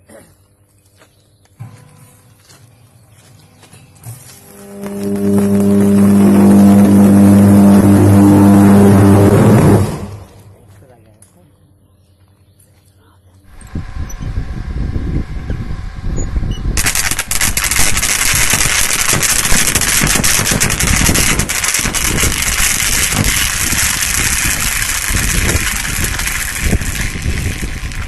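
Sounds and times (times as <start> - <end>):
electric arc crackling hiss: 4.1 - 10.3, 16.8 - 28.0
low rumble: 4.4 - 10.8, 13.5 - 28.0.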